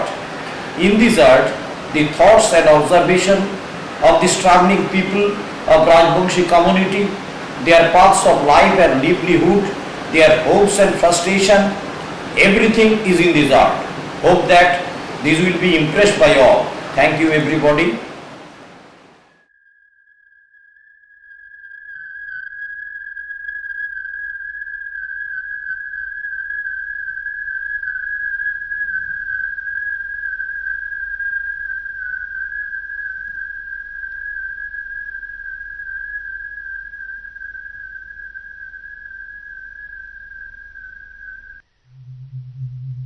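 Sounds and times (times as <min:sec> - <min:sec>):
faint low hum: 0:00.0 - 0:19.3, 0:27.8 - 0:43.0
high whistle-like tone: 0:20.1 - 0:43.0.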